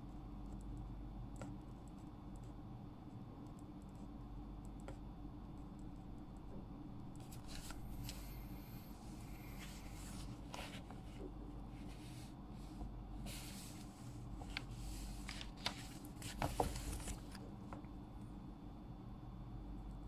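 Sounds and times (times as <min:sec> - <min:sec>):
steady low hum: 0:00.0 - 0:20.0
paper rustling: 0:07.2 - 0:08.2, 0:09.5 - 0:17.4.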